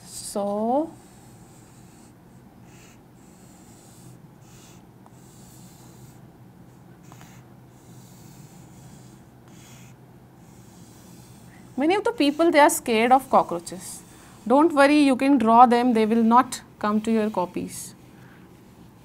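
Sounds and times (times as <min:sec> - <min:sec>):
faint low hum: 0:00.0 - 0:19.0
chalk scratching on chalkboard: 0:07.1 - 0:15.0, 0:16.8 - 0:17.9.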